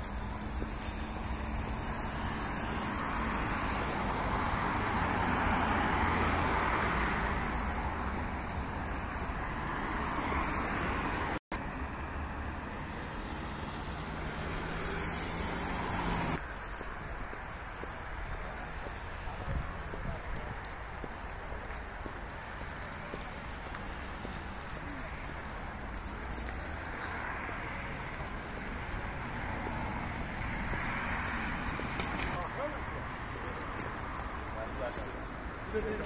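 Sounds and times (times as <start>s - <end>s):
road traffic: 0.0s - 36.0s
vehicle passing by: 0.3s - 11.4s, 12.6s - 16.4s.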